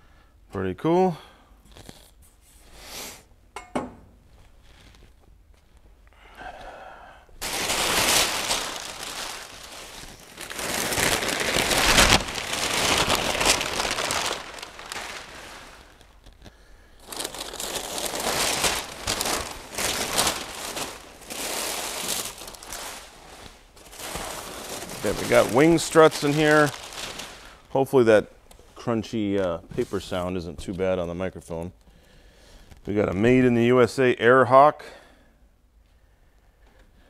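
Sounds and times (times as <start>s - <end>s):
packing paper crumpling: 7.4s - 27.8s.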